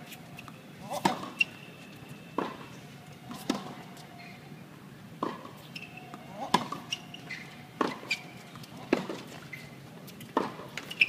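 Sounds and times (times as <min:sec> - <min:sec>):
tennis ball struck and bouncing: 0:05.2 - 0:06.9, 0:07.8 - 0:09.3, 0:10.3 - 0:11.0.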